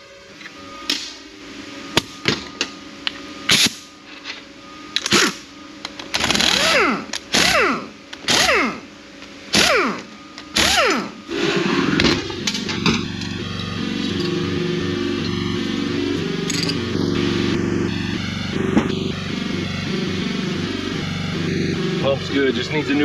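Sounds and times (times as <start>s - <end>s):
steady buzzing drone: 0.0s - 23.0s
tool whirring bursts: 5.0s - 23.0s.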